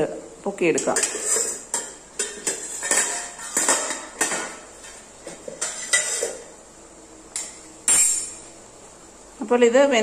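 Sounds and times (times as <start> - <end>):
steel cookware clinking: 0.8 - 6.5, 7.4 - 8.5.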